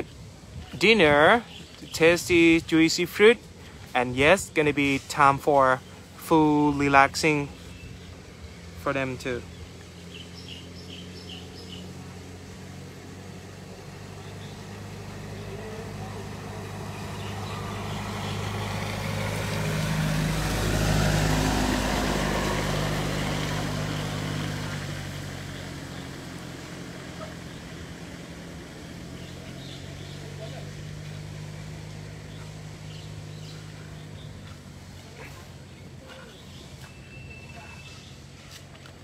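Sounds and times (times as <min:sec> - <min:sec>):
pickup truck driving past: 0:07.4 - 0:38.4.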